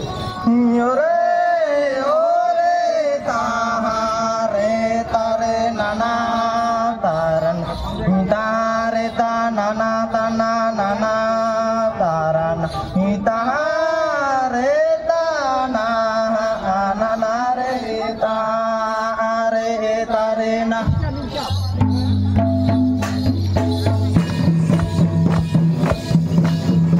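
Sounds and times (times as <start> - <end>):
chant-like singing on held notes: 0.0 - 20.8.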